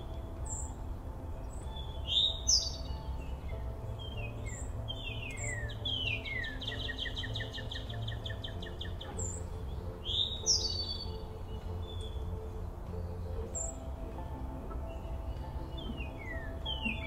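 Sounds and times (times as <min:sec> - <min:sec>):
songbirds singing: 0:00.0 - 0:17.0.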